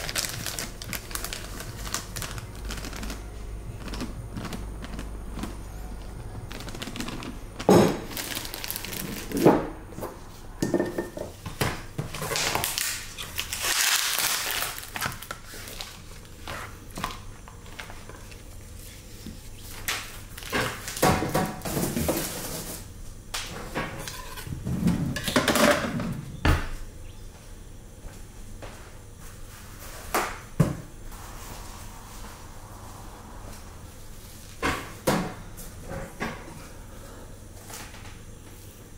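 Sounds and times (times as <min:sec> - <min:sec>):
plastic packaging rustling: 0:00.0 - 0:05.5, 0:06.5 - 0:09.6, 0:12.1 - 0:21.0.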